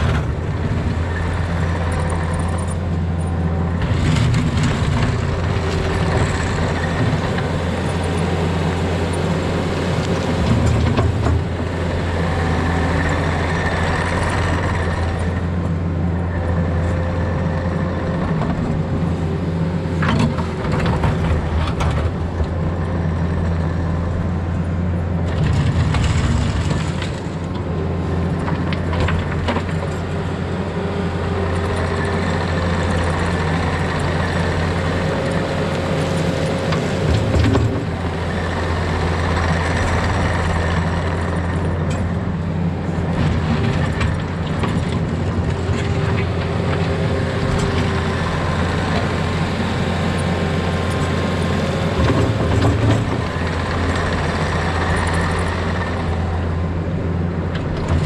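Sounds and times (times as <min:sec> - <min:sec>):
diesel engine running under work: 0:00.0 - 0:58.0.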